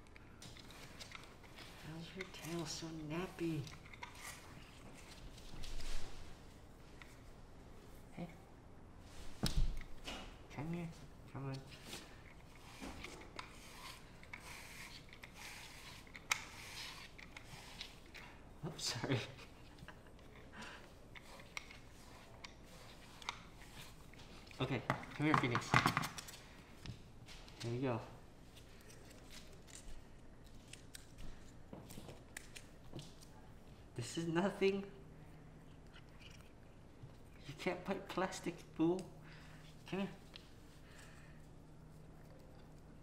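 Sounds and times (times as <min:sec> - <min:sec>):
soft rustling and rubbing: 0:00.3 - 0:08.4.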